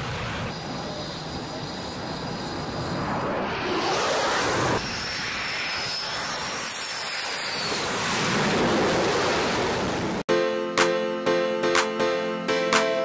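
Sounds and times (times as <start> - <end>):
high jet whine: 0.0 - 8.2
jet fighters flying past: 0.0 - 10.2
wind: 0.0 - 10.7.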